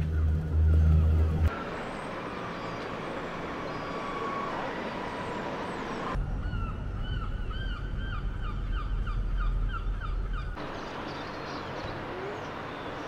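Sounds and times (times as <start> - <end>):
low rumble: 0.0 - 1.5.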